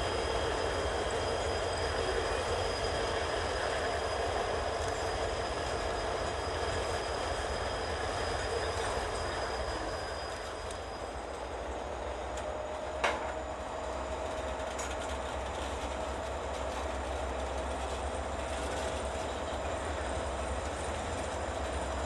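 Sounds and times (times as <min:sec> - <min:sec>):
high-pitched ringing: 0:00.0 - 0:12.2
diesel locomotive engines: 0:00.0 - 0:22.0
wheels rumbling on rail: 0:00.0 - 0:22.0.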